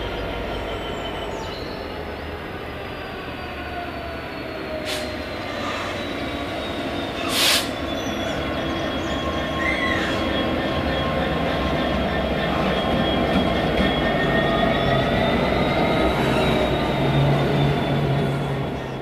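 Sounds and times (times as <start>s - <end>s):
train running on rails: 0.0s - 19.0s
short bursts of hiss: 4.8s - 5.1s, 7.2s - 7.8s.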